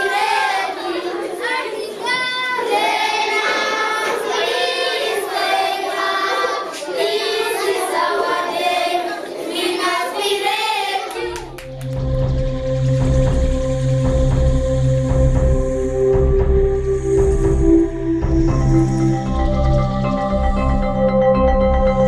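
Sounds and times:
children singing: 0.0s - 11.6s
music track with low drone: 11.2s - 22.0s.

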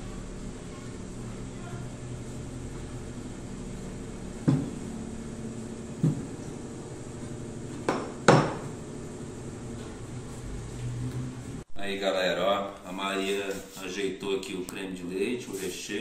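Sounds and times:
glass bottle knocking on table: 7.9s - 8.6s.

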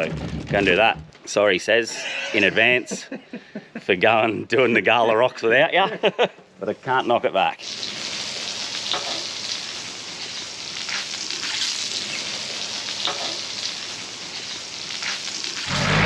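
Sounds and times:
meat sizzling on a hotplate: 7.6s - 16.0s.

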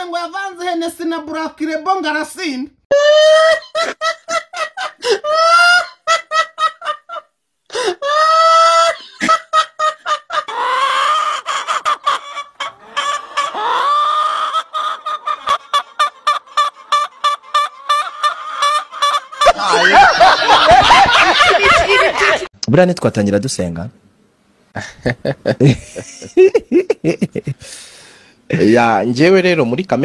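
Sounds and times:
hen cackling: 2.9s - 22.5s.

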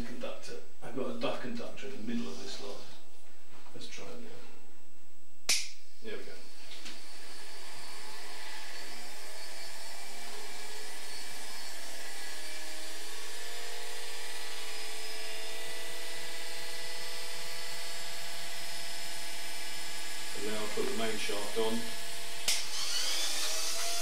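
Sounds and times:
electric motor whine: 6.2s - 24.0s.

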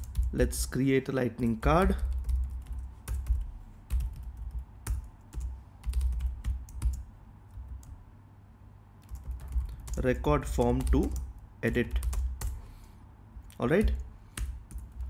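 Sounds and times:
typing on computer keyboard: 0.0s - 0.4s, 1.8s - 8.0s, 9.0s - 12.6s, 13.4s - 15.0s.

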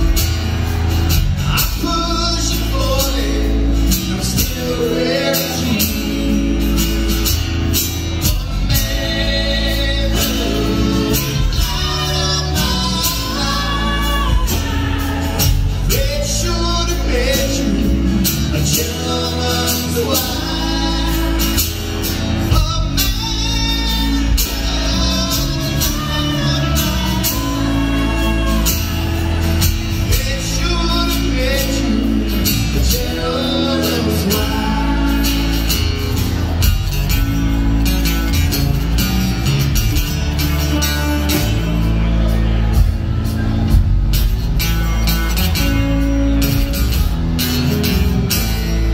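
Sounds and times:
person singing: 0.0s - 7.3s, 8.0s - 36.2s
live band playing: 0.0s - 48.9s.

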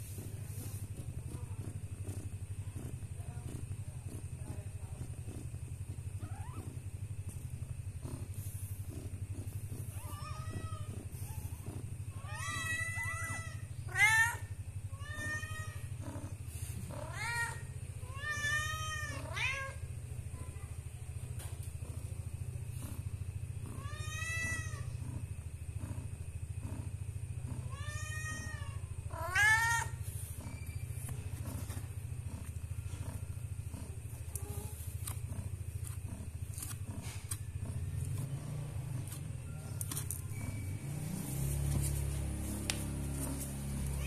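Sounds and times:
steady low hum: 0.0s - 44.0s
cat meowing: 12.2s - 15.9s, 17.0s - 19.8s, 23.7s - 24.9s, 27.6s - 30.8s.

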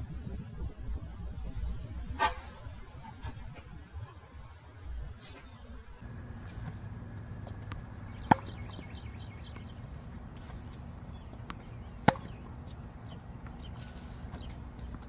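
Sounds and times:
tennis racket striking ball: 11.5s - 12.4s.

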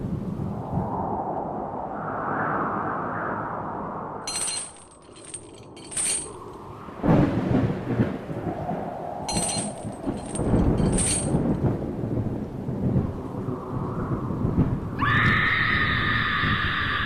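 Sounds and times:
thunder rumbling: 5.8s - 15.4s.

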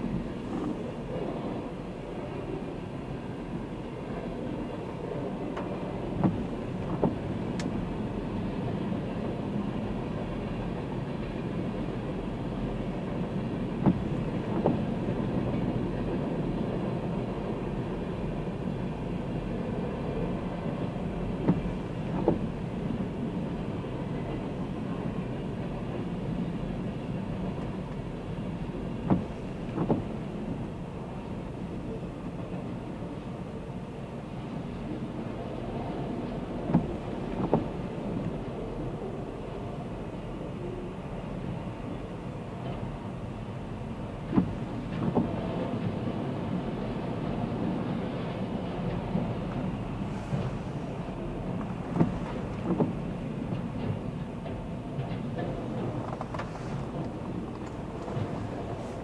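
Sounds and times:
train wheels rumbling on rail: 0.0s - 59.0s
wheels clacking on rail joint: 44.2s - 59.0s.

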